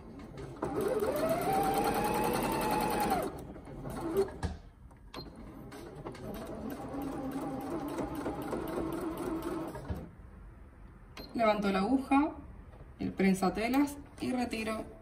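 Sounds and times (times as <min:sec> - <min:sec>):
sewing machine motor whine: 0:00.6 - 0:04.3.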